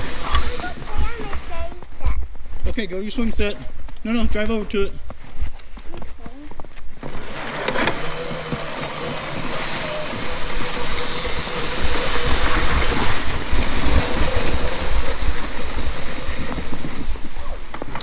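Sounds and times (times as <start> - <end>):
electric motor whine: 0.0 - 0.9, 7.0 - 18.0.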